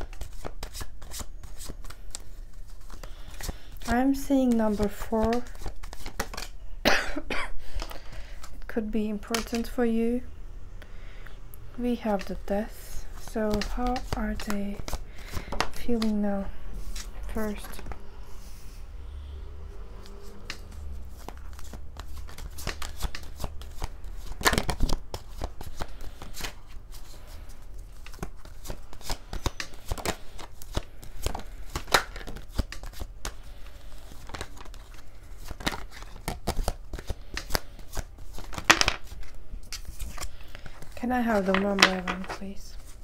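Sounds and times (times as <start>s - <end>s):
cards being shuffled: 0.0s - 6.6s, 7.7s - 9.8s, 12.0s - 18.0s, 20.0s - 43.0s.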